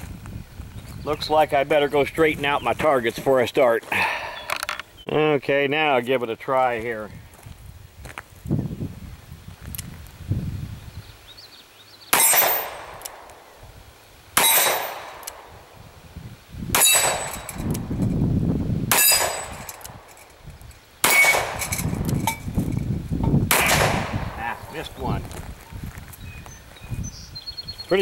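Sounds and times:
steel targets clanging: 12.2s - 12.8s, 14.4s - 15.2s, 16.8s - 17.7s, 18.9s - 20.4s, 21.0s - 22.5s
revolver shots: 23.4s - 24.5s.

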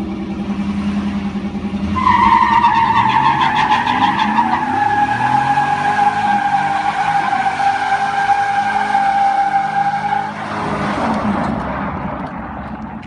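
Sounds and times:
tyres squealing: 2.0s - 10.4s.

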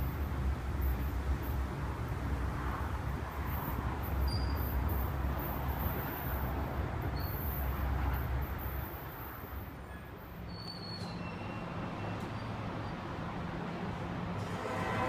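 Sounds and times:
train humming: 13.5s - 15.0s.

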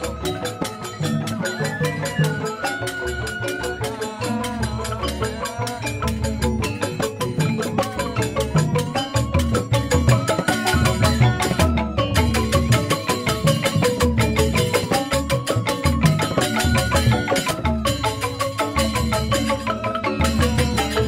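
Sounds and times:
bamboo xylophones: 0.0s - 21.0s
drum beats: 0.0s - 21.0s.

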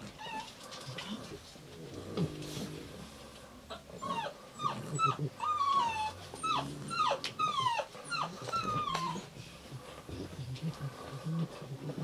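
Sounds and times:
puppy whimpering: 0.0s - 1.3s, 3.7s - 9.4s.

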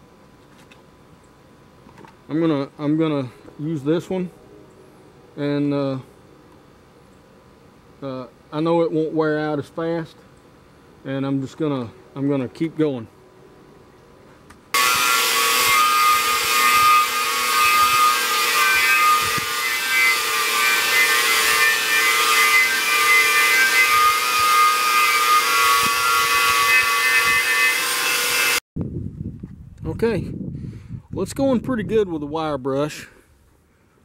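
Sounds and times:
angle grinder whine: 14.7s - 28.6s
wire wheel scraping metal: 14.8s - 28.6s.

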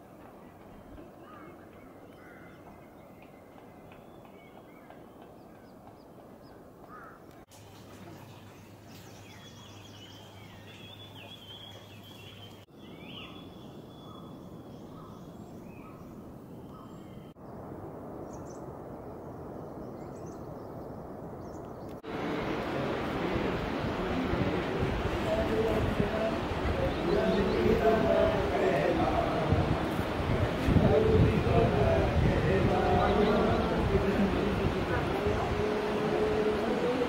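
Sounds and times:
wild birds chirping: 0.0s - 37.0s
steady rushing noise: 21.9s - 37.0s.

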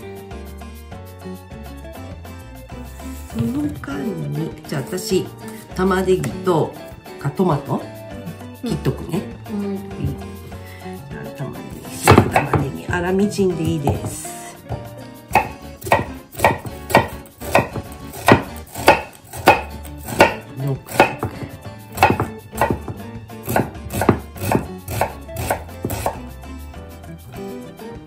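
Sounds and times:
knife chopping on wooden board: 11.9s - 26.3s.

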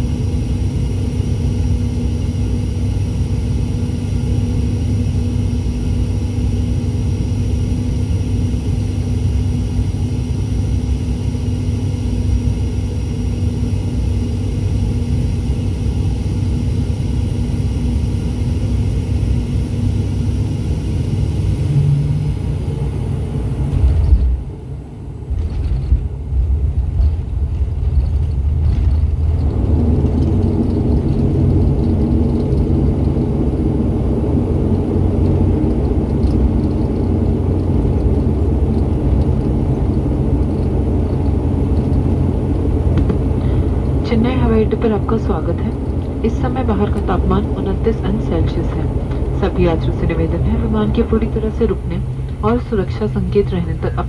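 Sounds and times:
turboprop engines droning: 0.0s - 54.0s.

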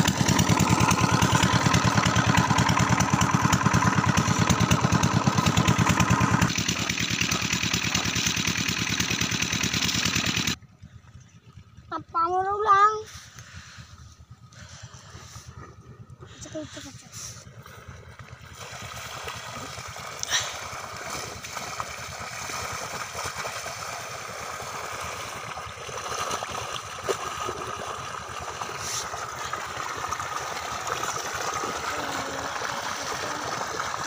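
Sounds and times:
water gushing and splashing: 0.0s - 10.6s, 17.5s - 34.0s.

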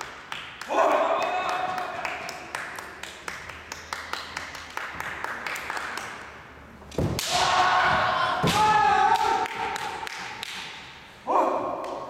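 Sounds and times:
loud thump: 6.9s - 8.8s.

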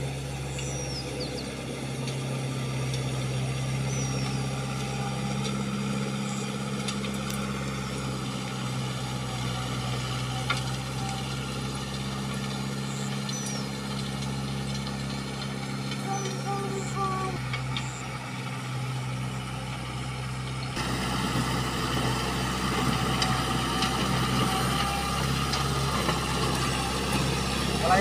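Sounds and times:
tractor engine humming: 0.0s - 28.0s
bird chirping: 0.5s - 1.6s, 3.8s - 4.5s, 12.9s - 13.8s.

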